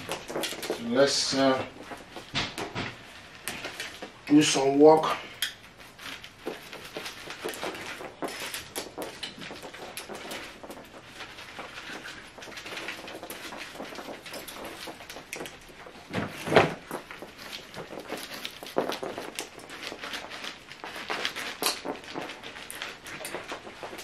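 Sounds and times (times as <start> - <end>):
handling rustles: 0.0 - 24.0.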